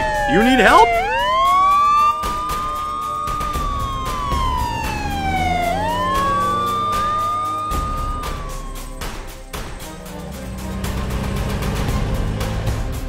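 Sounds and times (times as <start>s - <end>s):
police car siren wailing: 0.0s - 12.5s.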